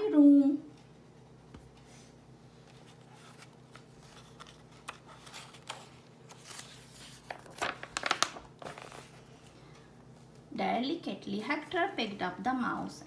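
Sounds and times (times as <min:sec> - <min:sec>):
paper page rustling: 0:02.6 - 0:09.3.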